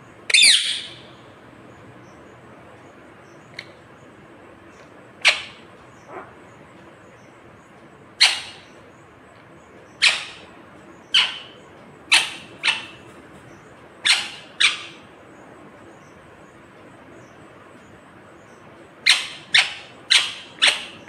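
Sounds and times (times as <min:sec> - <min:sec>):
parakeet squawking: 0:00.3 - 0:01.0, 0:05.2 - 0:06.3, 0:08.2 - 0:08.8, 0:10.0 - 0:10.5, 0:11.1 - 0:13.1, 0:14.0 - 0:15.0, 0:19.0 - 0:21.0.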